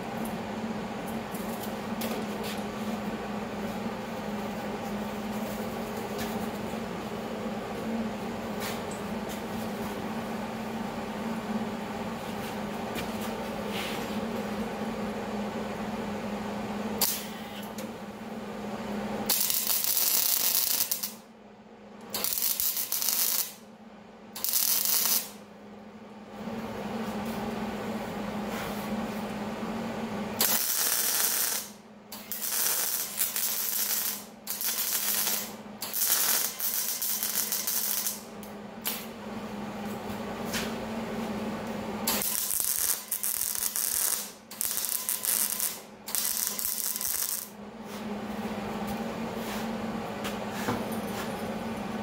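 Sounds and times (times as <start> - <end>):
steady low hum: 0.0 - 52.0
welding arc sizzling and crackling: 19.2 - 21.2, 22.1 - 23.6, 24.4 - 25.4, 30.4 - 39.1, 42.1 - 47.6.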